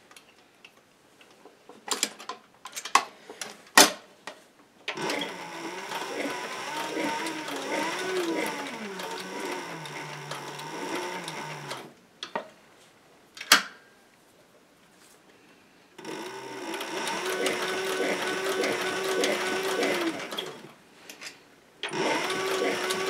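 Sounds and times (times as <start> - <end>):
sewing machine stitching: 4.9 - 11.9, 16.0 - 20.7, 21.8 - 23.0.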